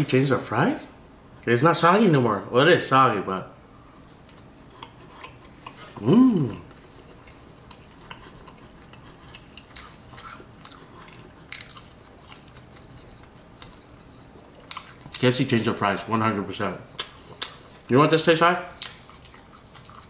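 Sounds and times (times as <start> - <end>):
man chewing soggy fries: 3.7 - 20.0
vocal hum: 4.8 - 11.4.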